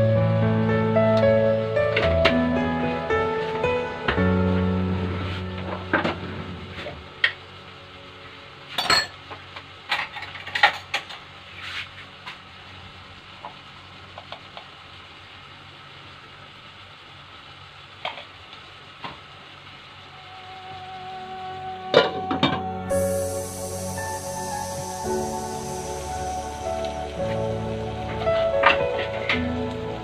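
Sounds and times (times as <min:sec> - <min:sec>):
faint steady hum: 0:00.0 - 0:11.6, 0:12.2 - 0:30.0.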